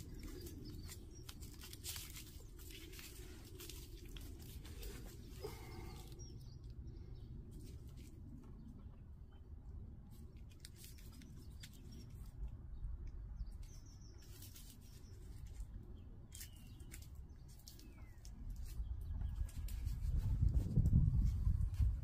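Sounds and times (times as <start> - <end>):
small bird chirping: 0.0 - 3.8, 10.6 - 19.9
hands rustling in soil: 0.0 - 8.7, 10.1 - 12.5, 13.4 - 22.0.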